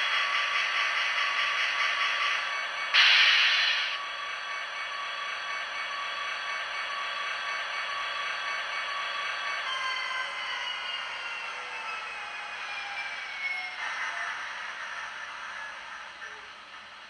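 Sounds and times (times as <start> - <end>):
diesel locomotive idling: 0.0 - 9.7
air hiss burst: 3.0 - 4.0.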